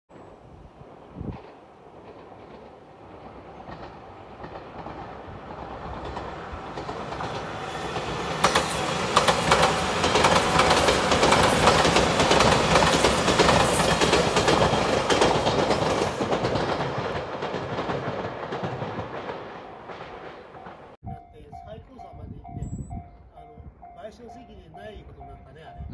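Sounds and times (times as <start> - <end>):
electric train passing: 0.1 - 25.8
train wheels clicking over rail joints: 1.3 - 21.0.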